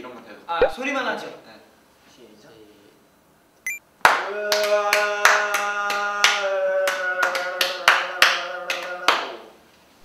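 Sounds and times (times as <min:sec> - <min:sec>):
hand claps keeping a beat: 0:04.0 - 0:09.5.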